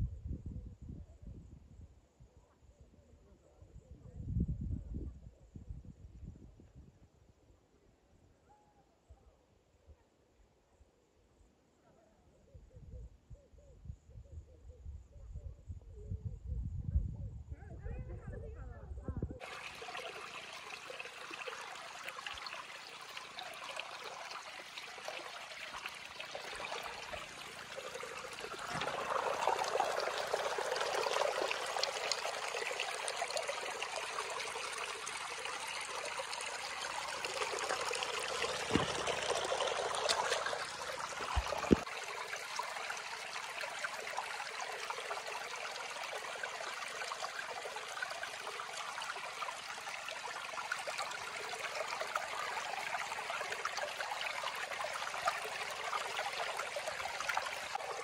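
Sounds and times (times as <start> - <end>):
stream running over stones: 19.4 - 58.0.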